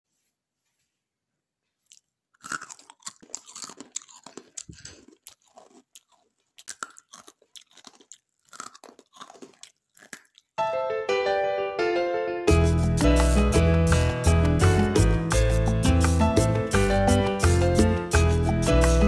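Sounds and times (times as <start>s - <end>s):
crunching on crisp snack: 1.8s - 10.6s.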